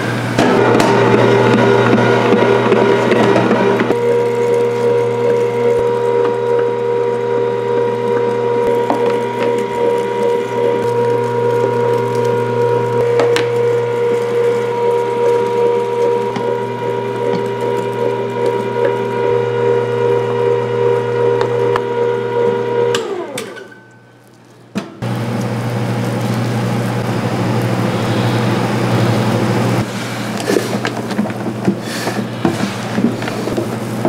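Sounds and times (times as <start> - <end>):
small electric motor whining: 2.2 - 23.4.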